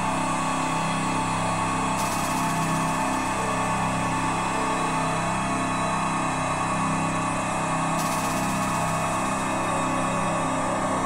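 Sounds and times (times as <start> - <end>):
layered ambient drone: 7.3 - 11.0.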